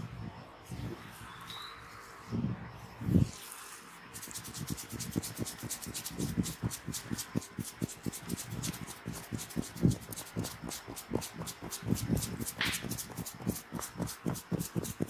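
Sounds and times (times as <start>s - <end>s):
fingers rubbing through hair: 4.2s - 15.0s.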